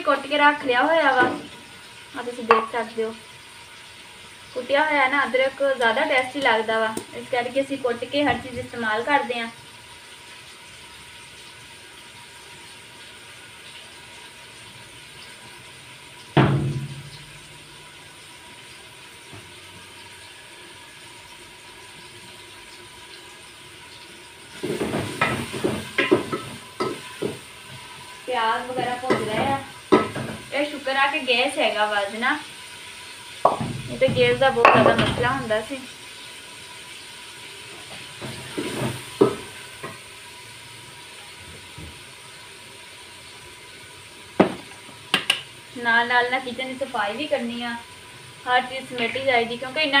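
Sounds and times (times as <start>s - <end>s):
onions sizzling in a pot: 0.0s - 50.0s
ladle knocking against pot: 2.5s - 2.8s, 33.4s - 35.2s
loud ringing knock: 16.4s - 17.4s.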